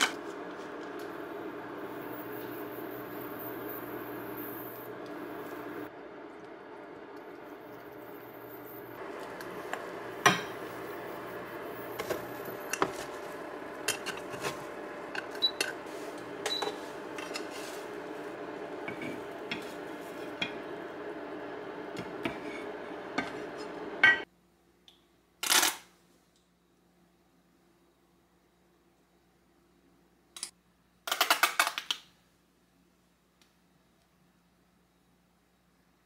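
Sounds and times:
steady hum: 0.0s - 24.3s
chopsticks scraping frying pan: 13.8s - 20.6s, 22.0s - 24.2s.

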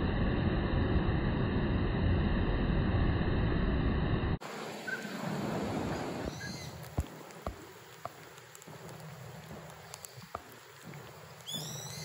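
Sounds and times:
faint bird chirps: 4.8s - 5.2s, 6.2s - 6.8s, 11.3s - 12.0s
light ticks: 6.8s - 11.7s.

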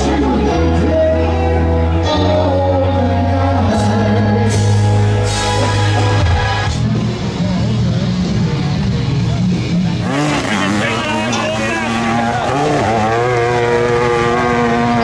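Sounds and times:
man singing: 0.0s - 5.2s
live rock band playing: 0.0s - 15.0s.

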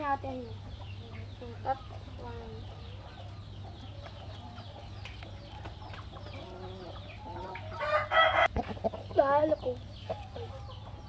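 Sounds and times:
chickens clucking softly: 0.0s - 11.0s
rooster crowing: 7.8s - 8.5s.

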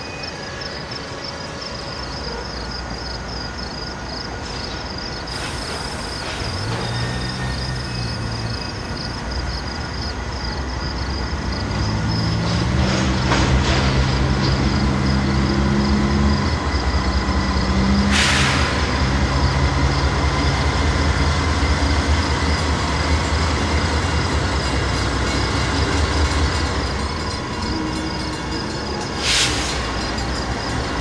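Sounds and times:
diesel locomotive engine droning: 0.0s - 31.0s
air brakes hissing: 4.4s - 8.2s, 18.0s - 19.3s, 29.1s - 30.4s.

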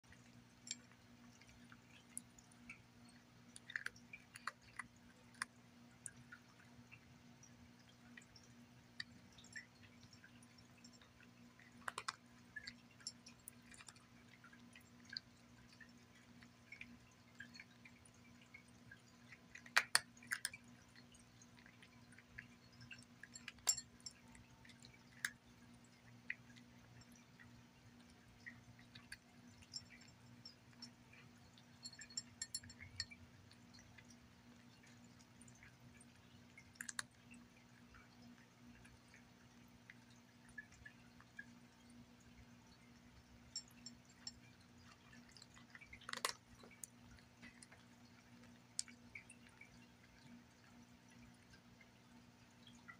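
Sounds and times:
faint steady low hum: 0.0s - 52.9s
cat crunching dry kibble: 3.4s - 6.6s, 7.8s - 27.3s, 33.5s - 38.4s, 43.6s - 50.7s.

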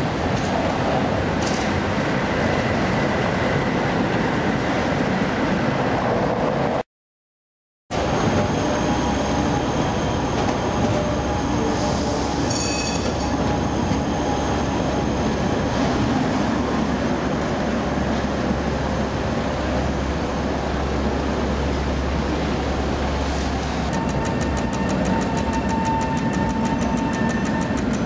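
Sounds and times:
tram rumbling past: 7.9s - 28.0s
tram wheel squeal: 8.0s - 16.4s, 23.4s - 28.0s.

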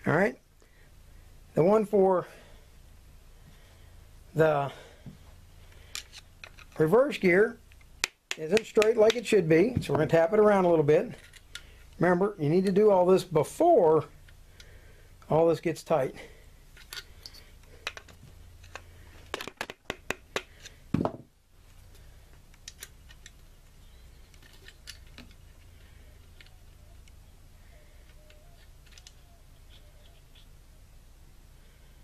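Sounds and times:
screwdriver clicking on metal parts: 28.0s - 29.8s.

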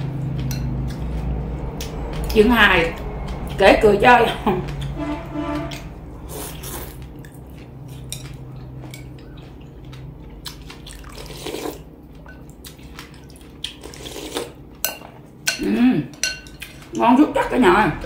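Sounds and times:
slurping noodles and broth: 6.2s - 7.0s, 10.9s - 11.8s, 13.8s - 14.6s.

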